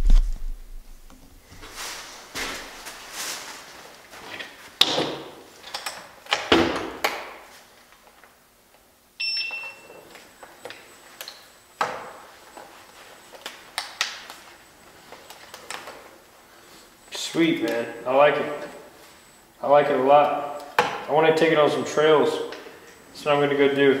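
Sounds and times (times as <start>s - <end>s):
clothing rustle: 1.4s - 4.8s
short electronic beep: 9.2s - 10.0s.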